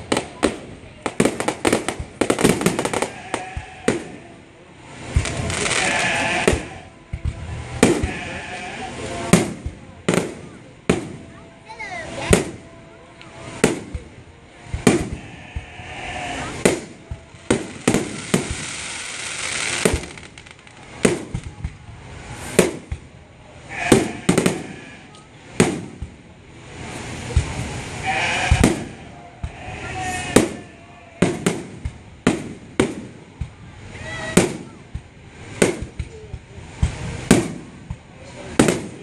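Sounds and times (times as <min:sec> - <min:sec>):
firework shells bursting: 0:00.0 - 0:04.3, 0:05.0 - 0:08.1, 0:16.5 - 0:21.8, 0:28.5 - 0:29.6, 0:30.3 - 0:33.5
fireworks crackling: 0:00.0 - 0:39.0.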